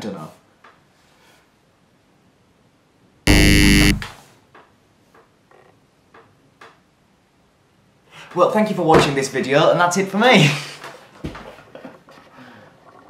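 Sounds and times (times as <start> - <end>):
wrong-answer buzzer: 3.3 - 4.1.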